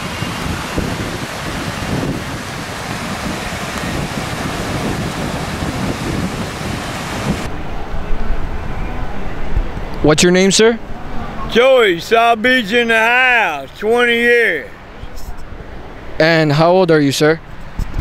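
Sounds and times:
ocean surf on beach: 0:00.0 - 0:07.6, 0:11.4 - 0:15.0
wind buffeting microphone: 0:00.0 - 0:08.6.

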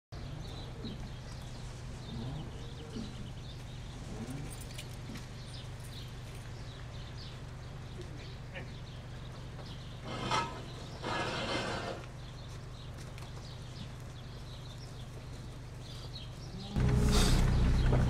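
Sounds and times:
small birds chirping: 0:00.2 - 0:11.1, 0:12.0 - 0:18.0
steady low hum: 0:12.2 - 0:18.0.

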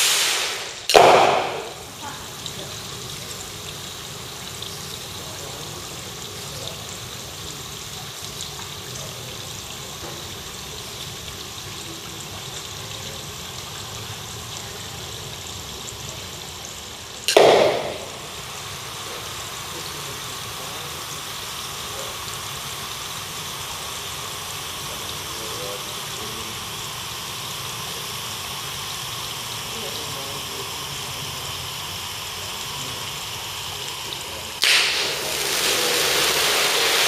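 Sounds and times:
loud burst: 0:00.0 - 0:02.1, 0:17.3 - 0:18.6, 0:34.6 - 0:37.0
fireworks fountains hissing: 0:00.0 - 0:37.0.

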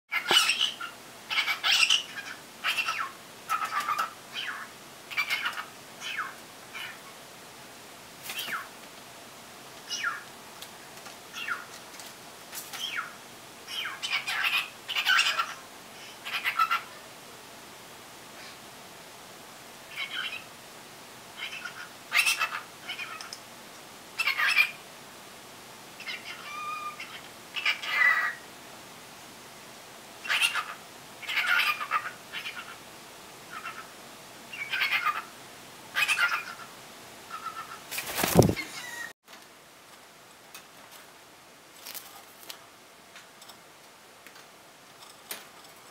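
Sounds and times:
recorded bird calls from computer: 0:00.1 - 0:07.0, 0:11.3 - 0:11.7, 0:13.7 - 0:15.6, 0:19.9 - 0:20.5, 0:24.2 - 0:24.8, 0:26.0 - 0:28.4, 0:30.2 - 0:32.8, 0:34.5 - 0:35.3
cockatiel whistles and chirps: 0:26.0 - 0:27.2, 0:38.6 - 0:39.1.

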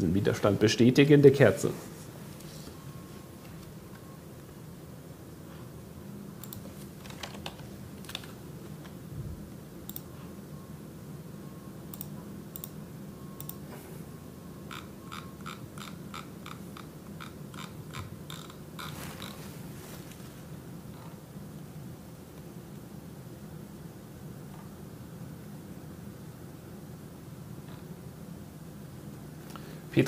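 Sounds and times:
computer keyboard typing: 0:14.7 - 0:19.4.

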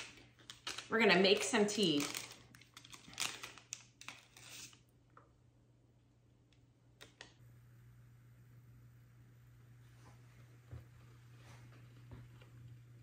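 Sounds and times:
tea bag packet crinkling: 0:00.0 - 0:04.8.

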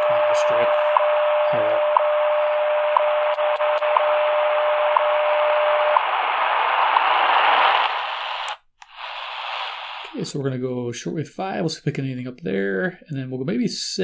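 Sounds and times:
steady radio tone: 0:00.0 - 0:10.4
static hiss: 0:03.0 - 0:10.6.

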